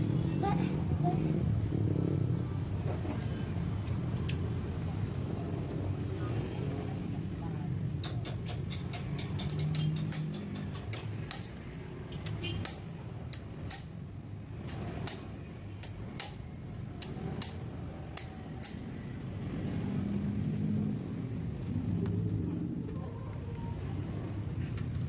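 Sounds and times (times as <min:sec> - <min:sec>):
hand tools clinking on metal: 0:02.9 - 0:04.5, 0:08.0 - 0:15.2.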